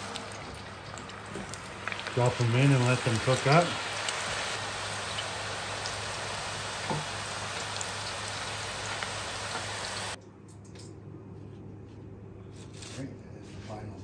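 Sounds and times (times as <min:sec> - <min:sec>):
fries sizzling in hot oil: 0:00.0 - 0:10.2.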